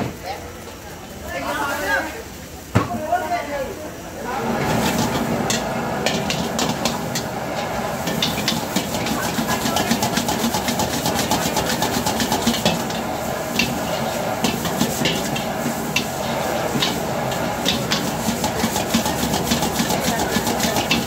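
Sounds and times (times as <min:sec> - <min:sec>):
gas burner hiss: 0:04.1 - 0:21.0
food sizzling: 0:04.2 - 0:21.0
metal ladle clacking on wok: 0:08.0 - 0:16.2.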